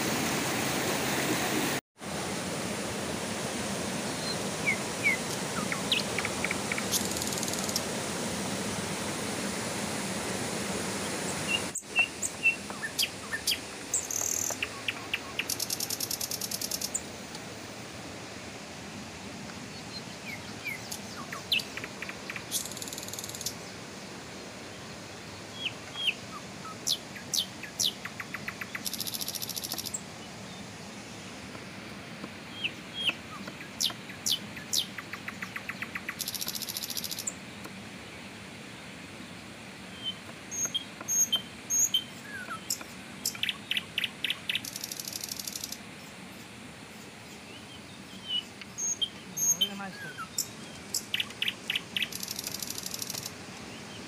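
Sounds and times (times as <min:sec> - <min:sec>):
river rushing over rocks: 0:00.0 - 0:14.8
bird chirps: 0:11.5 - 0:17.0, 0:25.6 - 0:30.0, 0:32.6 - 0:37.3, 0:40.0 - 0:45.8, 0:48.0 - 0:53.3.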